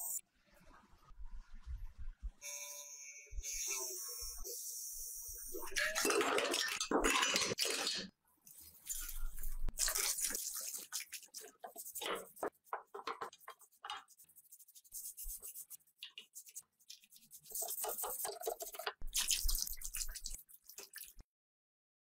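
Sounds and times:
scrubbing metal parts: 5.7s - 21.1s.

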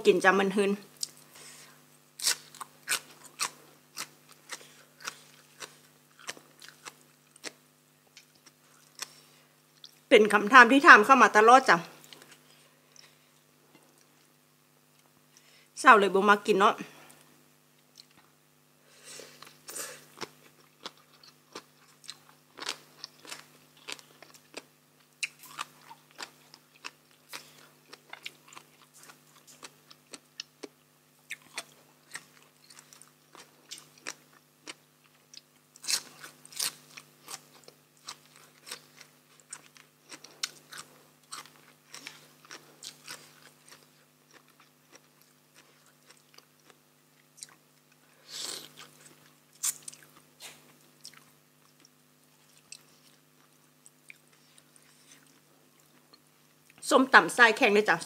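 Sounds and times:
crunchy chewing: 2.2s - 10.0s, 19.3s - 56.8s.

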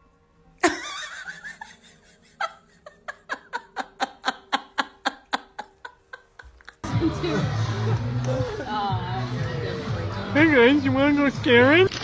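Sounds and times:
rhythmic laughter: 0.6s - 8.9s.

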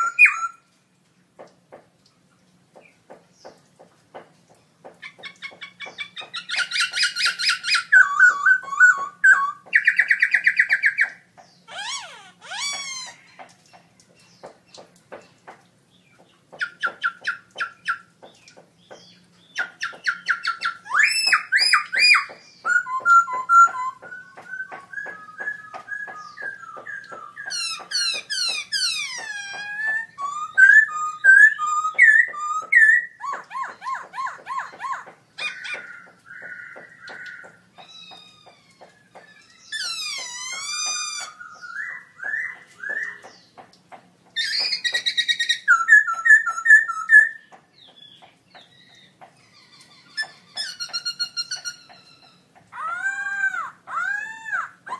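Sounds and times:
bird singing whistled song: 0.0s - 0.6s, 5.8s - 11.2s, 18.9s - 37.5s, 39.0s - 43.5s, 44.4s - 49.1s.

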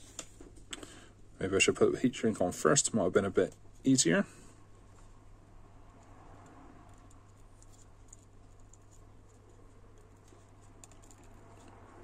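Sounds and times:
fingers rustling tubing: 6.9s - 12.0s.

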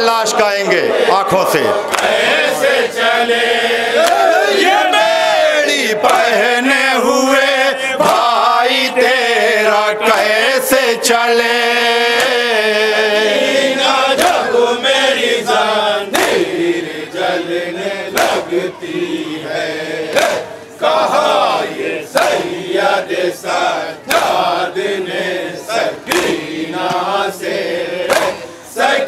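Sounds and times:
men chanting a lament: 0.0s - 29.0s
hands slapping chests: 1.8s - 2.2s, 4.0s - 4.3s, 6.0s - 6.4s, 8.0s - 8.4s, 14.2s - 14.5s, 16.1s - 16.4s, 18.1s - 18.5s, 20.1s - 20.4s, 24.1s - 24.4s, 26.1s - 27.2s, 28.1s - 28.4s.

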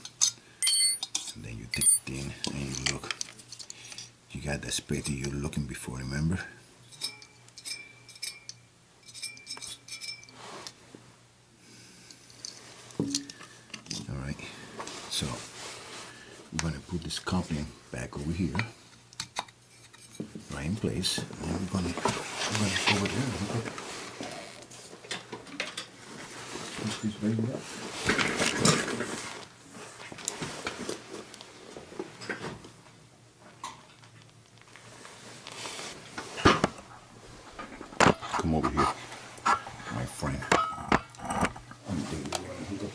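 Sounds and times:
metallic clinks and knocks: 0.0s - 2.1s, 6.9s - 10.4s
faint steady hum: 0.0s - 42.9s.

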